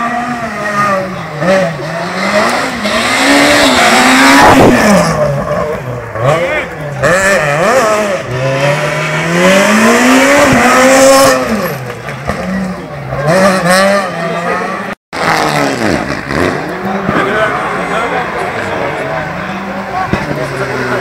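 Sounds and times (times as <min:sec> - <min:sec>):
rally car engine revving: 0:00.0 - 0:21.0.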